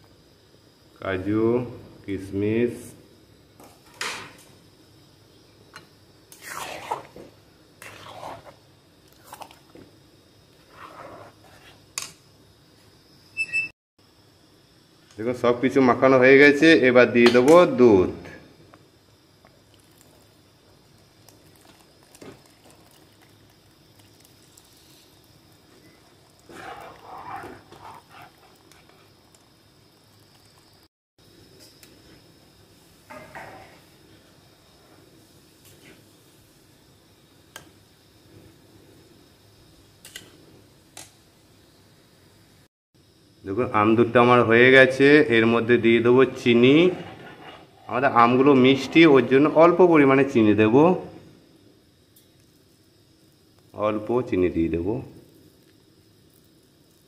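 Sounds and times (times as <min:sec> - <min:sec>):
spoon stirring thick wet mixture: 0:06.4 - 0:09.8, 0:25.6 - 0:30.7, 0:46.2 - 0:49.7
milk pouring into a pan: 0:19.5 - 0:30.8.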